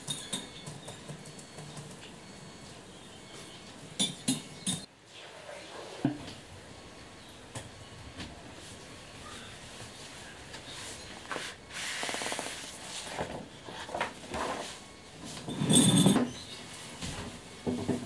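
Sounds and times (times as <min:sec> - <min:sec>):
chair creaking as someone sits: 0:11.2 - 0:16.6.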